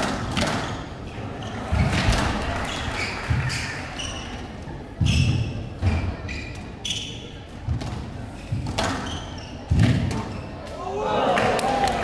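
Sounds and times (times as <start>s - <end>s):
squash ball hitting rackets and walls: 0.0s - 0.9s, 5.0s - 6.7s, 7.6s - 10.3s
shoes squeaking on court: 2.6s - 10.7s.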